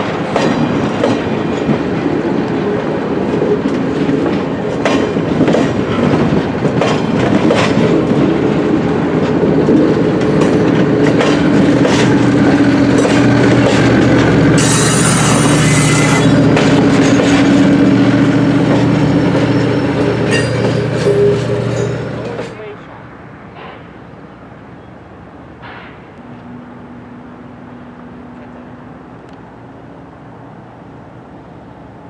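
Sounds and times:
train wheels clicking over rail joints: 0.0s - 22.6s
train rolling rumble: 0.0s - 32.0s
low hum: 26.2s - 29.4s.

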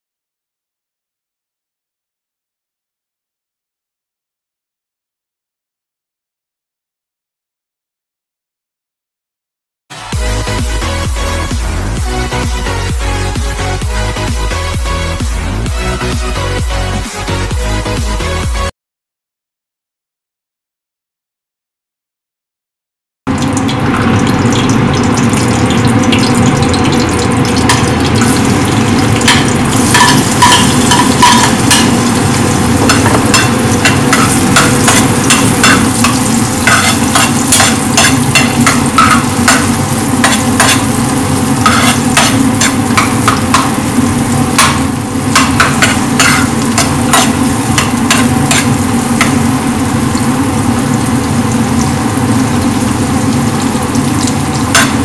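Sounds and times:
onion frying in butter: 23.3s - 55.0s
spatula scraping and tapping pan: 29.2s - 43.8s, 44.5s - 49.4s, 54.7s - 55.0s.

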